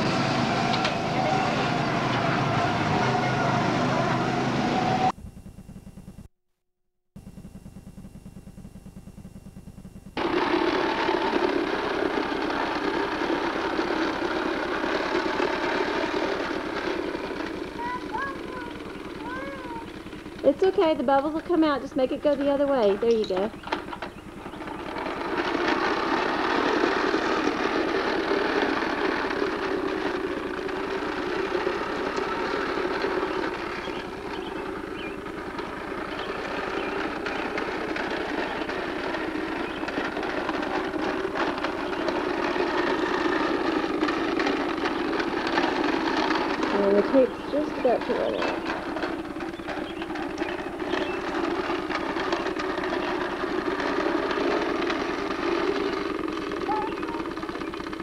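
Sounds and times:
toy lawn mower rattling: 0:00.0 - 0:05.2, 0:10.2 - 0:58.0
steady hum: 0:03.8 - 0:06.3, 0:07.2 - 0:17.9.

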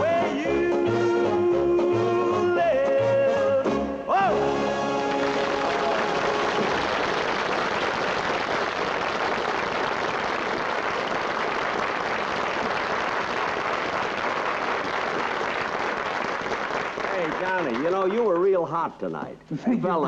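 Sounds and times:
audience applauding: 0:04.7 - 0:18.8.

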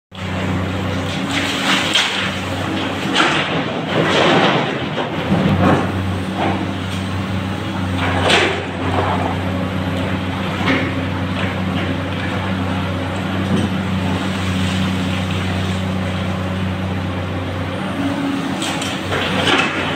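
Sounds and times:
diesel engines running: 0:00.1 - 0:19.9
excavator scraping and clattering: 0:00.2 - 0:19.9.

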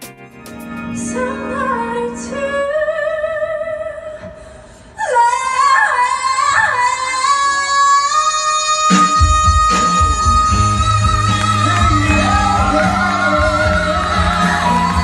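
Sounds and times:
backing music: 0:00.0 - 0:02.7, 0:08.9 - 0:15.0
woman singing: 0:01.0 - 0:04.3, 0:05.0 - 0:15.0.

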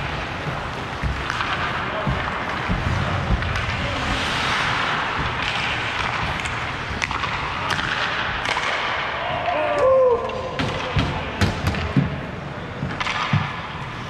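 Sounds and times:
skate blades scraping ice: 0:00.0 - 0:08.3
hockey sticks and puck clacking: 0:00.0 - 0:14.0.

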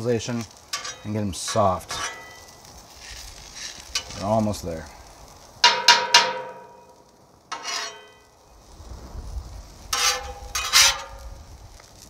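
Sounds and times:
spatula scraping on griddle: 0:00.2 - 0:04.5, 0:07.5 - 0:08.3, 0:09.7 - 0:11.4
metal spatula clanking on griddle: 0:00.7 - 0:02.5, 0:03.9 - 0:04.2, 0:05.6 - 0:06.9, 0:07.5 - 0:08.2, 0:09.9 - 0:11.2.

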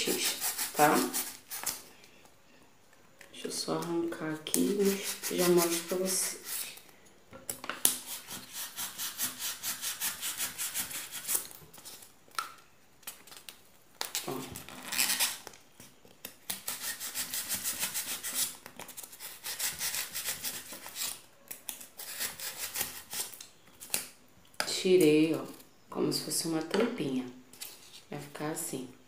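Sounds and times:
knife sawing through styrofoam: 0:00.0 - 0:01.7, 0:04.6 - 0:06.7, 0:08.0 - 0:11.4, 0:16.6 - 0:21.2, 0:22.0 - 0:23.3.

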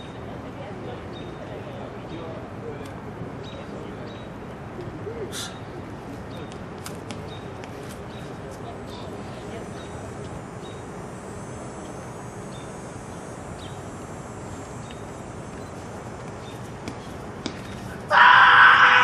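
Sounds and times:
open-air background noise: 0:00.0 - 0:19.0
person shouting: 0:18.1 - 0:19.0.

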